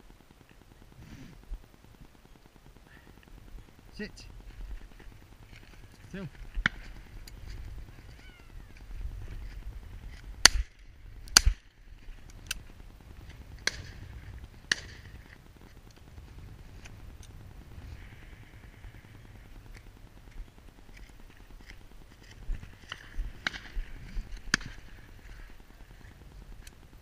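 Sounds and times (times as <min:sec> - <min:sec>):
faint sharp cracks: 0:04.8 - 0:16.0, 0:19.0 - 0:25.6.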